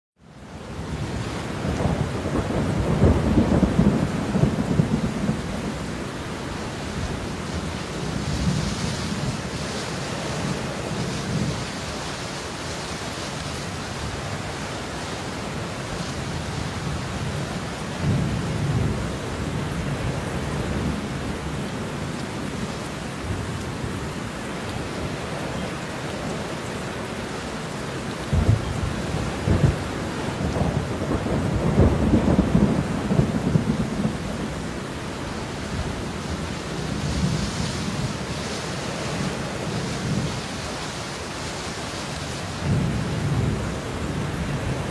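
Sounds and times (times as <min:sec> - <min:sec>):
steady rain: 0:00.2 - 0:44.9
rolling thunder: 0:01.0 - 0:05.8, 0:28.2 - 0:34.7, 0:42.6 - 0:44.9.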